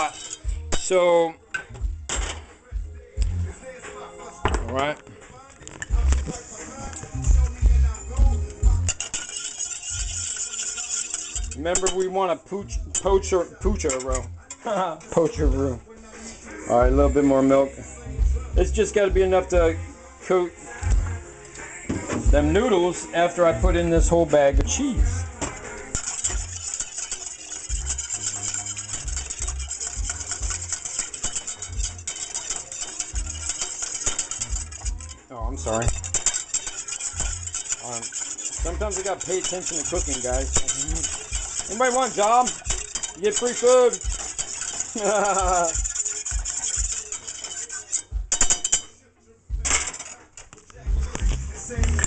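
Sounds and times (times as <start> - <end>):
whisk scraping metal saucepan: 0.0 - 1.1, 5.6 - 17.7, 22.1 - 49.0, 49.6 - 52.0
music with bass beat: 0.4 - 0.8, 1.7 - 5.0, 5.8 - 9.0, 12.7 - 14.4, 15.4 - 15.8, 16.8 - 17.2, 18.0 - 19.9, 20.8 - 21.3, 21.9 - 22.7, 23.5 - 25.5, 27.7 - 30.9, 33.1 - 33.5, 34.4 - 36.2, 38.6 - 39.0, 40.0 - 41.6, 48.1 - 48.4, 49.5 - 49.8, 50.7 - 52.0.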